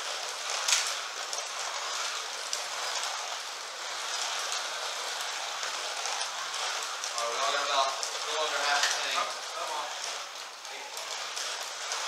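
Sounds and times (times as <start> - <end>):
slot car motors hissing: 0.0 - 12.0.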